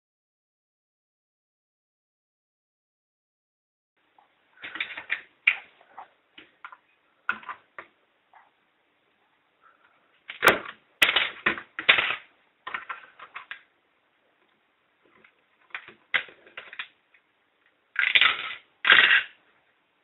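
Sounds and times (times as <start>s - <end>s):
plastic parts clicking and clattering: 4.6s - 5.7s, 10.2s - 13.7s, 15.1s - 17.2s, 18.0s - 19.4s.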